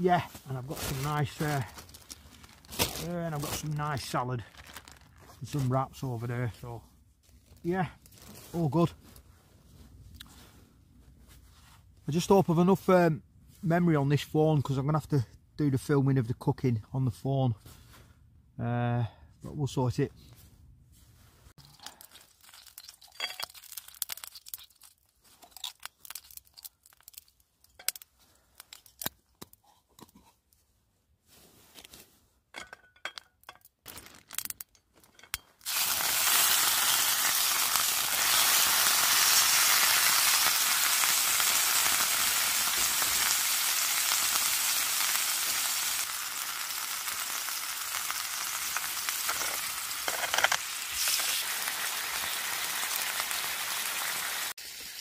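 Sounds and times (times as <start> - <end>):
steak sizzling in a hot pan: 35.6 - 55.0.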